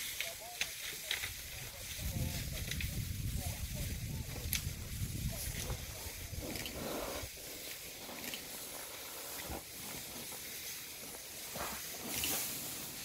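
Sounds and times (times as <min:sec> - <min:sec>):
elephant breathing and sniffing: 0:05.0 - 0:13.0.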